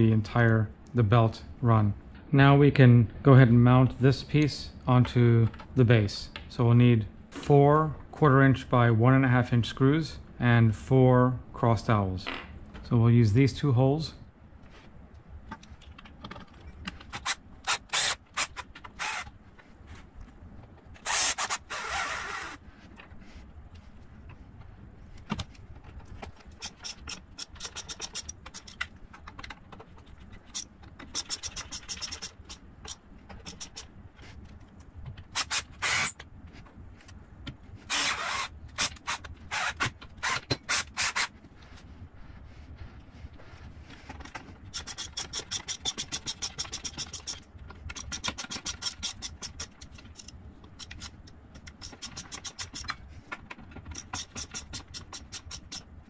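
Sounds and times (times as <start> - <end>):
rapid ratcheting clicks: 26.0 - 33.9, 44.2 - 55.9.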